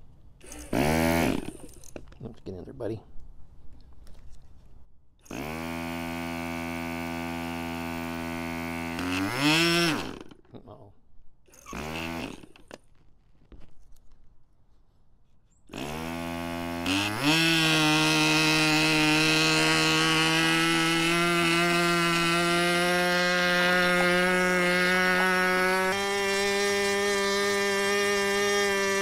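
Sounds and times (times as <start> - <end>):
small model engine running: 0.4 - 1.9, 5.2 - 10.4, 11.5 - 12.7, 15.7 - 29.0
electric starter spinning: 0.4 - 2.0, 5.2 - 10.4, 11.5 - 12.8, 15.7 - 29.0.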